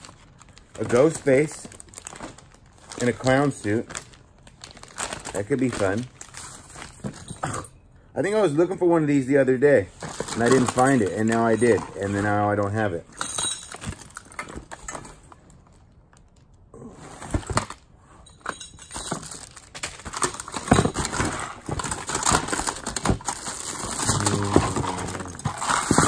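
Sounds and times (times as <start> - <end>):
plastic packaging crinkling: 0.0 - 7.3, 9.9 - 12.8, 19.1 - 26.0.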